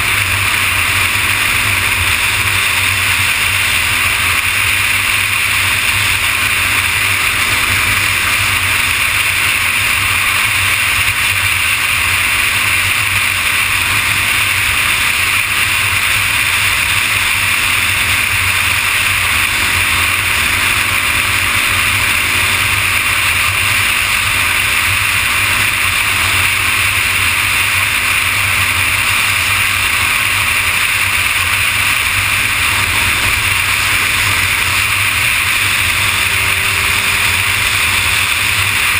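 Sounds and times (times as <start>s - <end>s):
motorcycle engine cruising: 0.0s - 38.9s.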